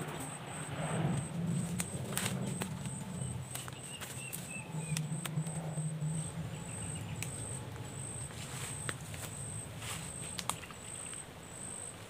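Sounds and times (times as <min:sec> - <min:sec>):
bird notes: 0:00.0 - 0:12.0
insect pulsing chirp: 0:00.0 - 0:12.0
leaves and twigs crackling: 0:00.0 - 0:12.0
low hum: 0:00.0 - 0:12.0.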